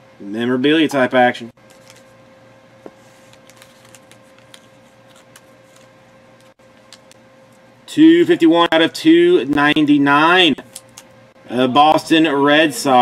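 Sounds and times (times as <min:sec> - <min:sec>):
faint hum: 0:00.0 - 0:13.0
trading cards being handled: 0:01.6 - 0:02.2, 0:02.8 - 0:07.6, 0:10.6 - 0:11.2.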